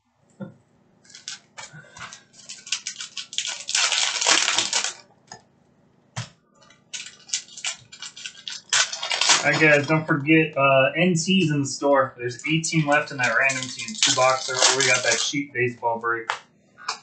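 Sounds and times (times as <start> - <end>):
card pack wrappers crinkling: 1.1 - 5.0, 6.8 - 9.9, 12.3 - 15.7.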